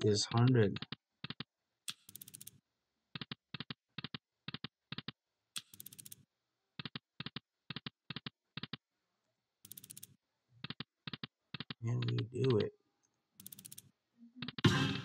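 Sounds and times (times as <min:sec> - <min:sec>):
sharp double clicks: 0:13.4 - 0:14.7.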